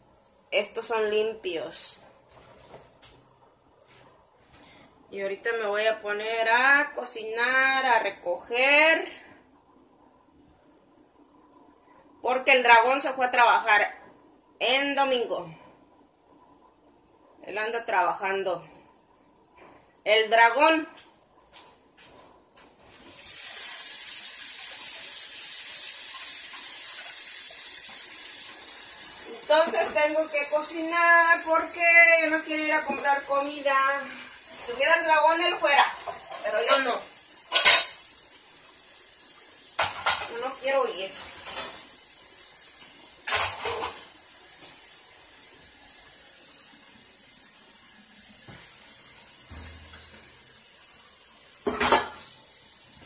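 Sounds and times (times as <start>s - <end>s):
faint steady hiss: 0.0s - 53.0s
faucet water running: 22.9s - 53.0s.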